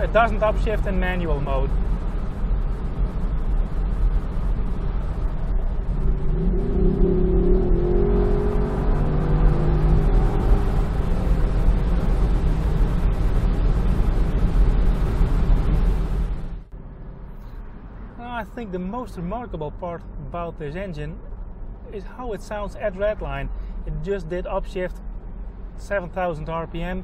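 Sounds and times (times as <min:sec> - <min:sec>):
car engine at full throttle: 0:00.0 - 0:20.5
wind and road noise: 0:00.0 - 0:27.0.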